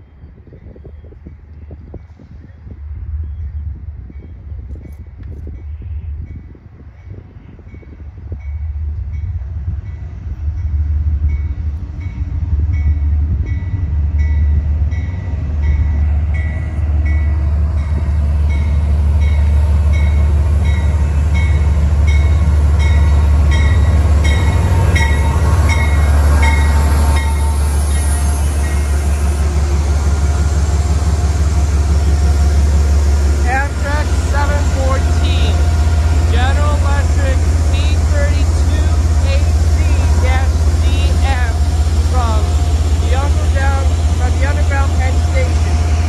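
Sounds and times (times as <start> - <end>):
train engine rumble: 0.0 - 46.0
locomotive bell ringing: 11.3 - 29.2.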